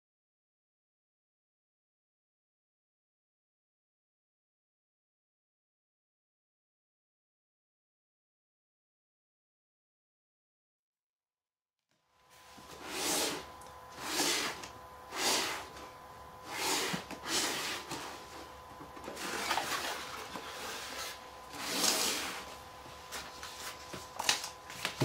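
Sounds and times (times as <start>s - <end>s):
faint steady hum: 12.0s - 25.0s
cardboard box scraping: 12.4s - 15.8s, 16.4s - 25.0s.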